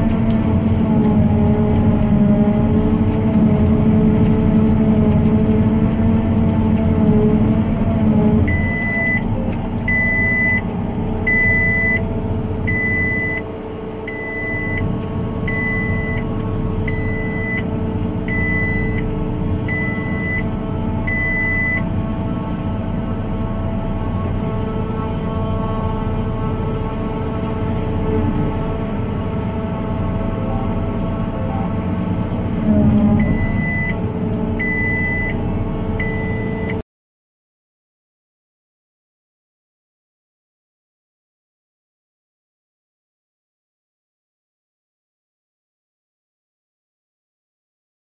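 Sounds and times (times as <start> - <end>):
forage harvester running: 0.0 - 36.7
high alarm beeps: 8.5 - 9.2, 9.9 - 10.6, 11.3 - 12.0, 14.1 - 14.9, 15.5 - 16.3, 18.3 - 19.0, 19.7 - 20.4, 21.1 - 21.9, 33.2 - 34.0, 34.6 - 35.4, 36.0 - 36.8.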